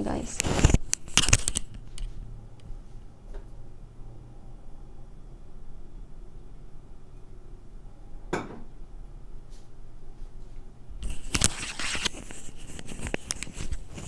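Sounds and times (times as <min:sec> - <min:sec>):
rustling of handled objects: 0:10.2 - 0:14.0.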